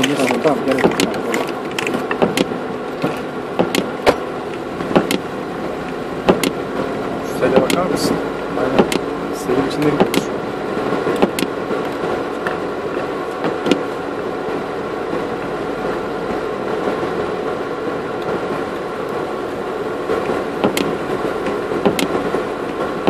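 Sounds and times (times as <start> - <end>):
vehicle engine running: 0.0 - 23.0
sharp knocks: 0.7 - 1.2, 1.8 - 4.2, 4.8 - 5.2, 6.2 - 6.6, 20.6 - 20.9, 21.8 - 22.2.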